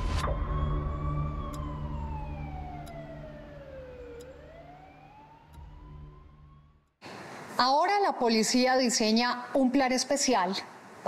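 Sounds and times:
low steady drone: 0.0 - 7.0
wailing siren: 0.1 - 7.0.

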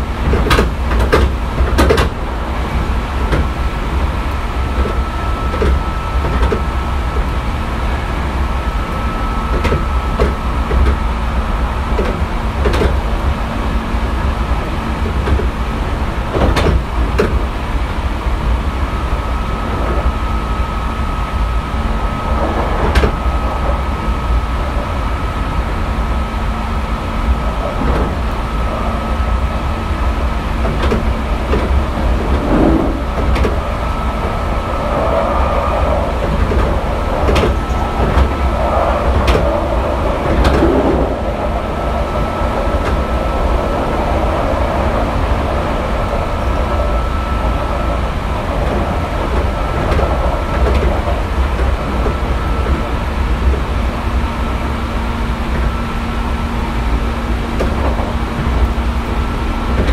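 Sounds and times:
train rumbling: 0.0 - 59.9
wheels clicking over track: 0.2 - 2.2, 27.3 - 46.9.

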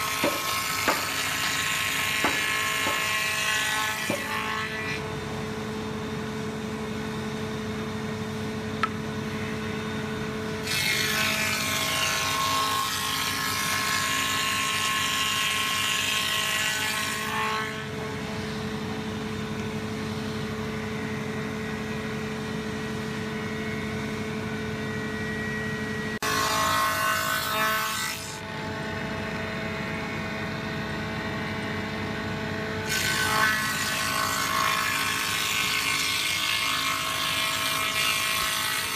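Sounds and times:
planer cutting boards: 0.0 - 5.1, 10.4 - 19.0, 26.2 - 28.7, 32.6 - 38.9
wood planer motor hum: 0.0 - 38.9.

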